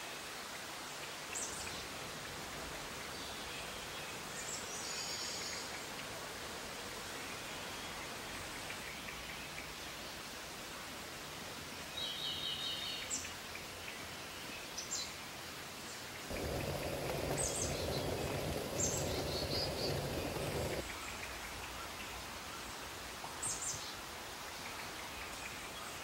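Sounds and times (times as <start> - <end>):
steady background hiss: 0.0 - 26.0
pot of water boiling: 16.3 - 20.8
small birds chirping: 16.3 - 21.0.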